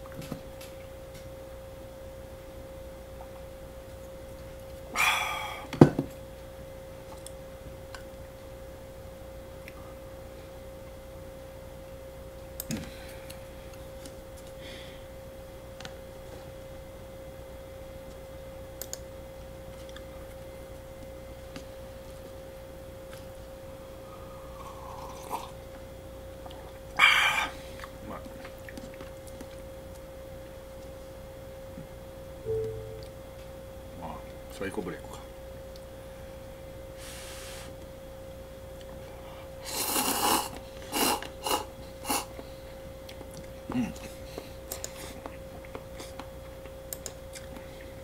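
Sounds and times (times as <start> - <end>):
steady high hum: 0.0 - 48.0
person slurping noodles: 24.6 - 25.6, 39.6 - 42.3.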